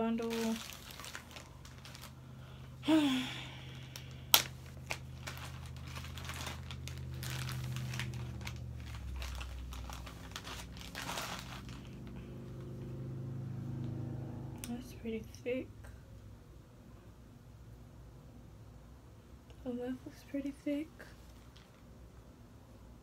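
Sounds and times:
plastic bag crinkling: 0.0 - 2.8, 3.7 - 12.2.

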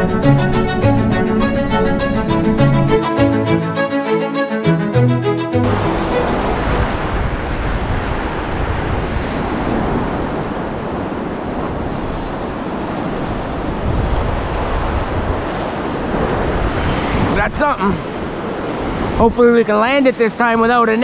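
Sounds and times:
wind rumbling on microphone: 0.0 - 3.0, 5.6 - 20.8
river rapids rushing: 5.6 - 21.0.

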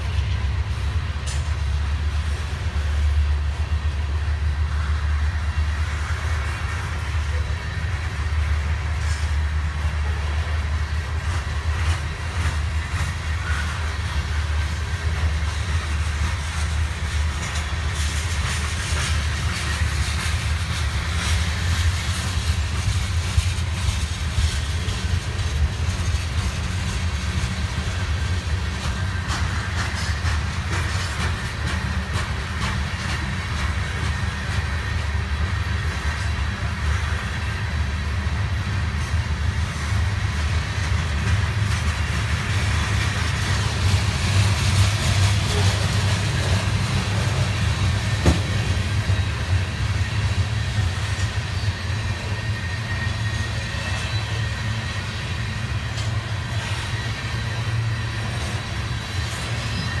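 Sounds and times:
steel wheels rumbling on rail: 0.0 - 60.0.

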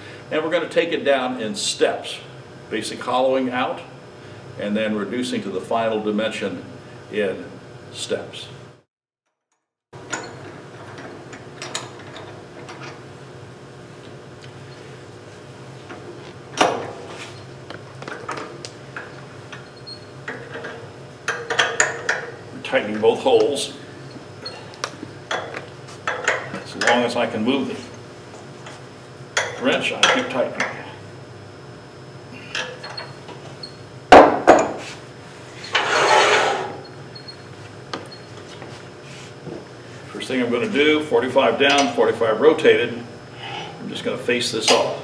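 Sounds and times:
lathe tool rest scraping: 34.5 - 36.9.

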